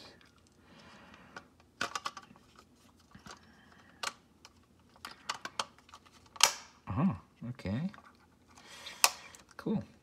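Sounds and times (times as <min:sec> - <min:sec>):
plastic cover snapping into place: 0:06.4 - 0:06.7.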